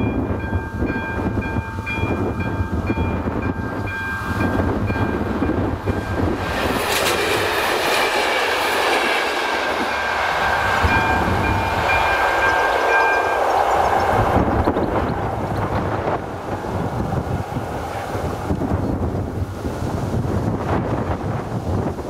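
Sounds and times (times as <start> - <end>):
crossing warning bell ringing: 0.0 - 16.2
train wheels on rails: 0.0 - 22.0.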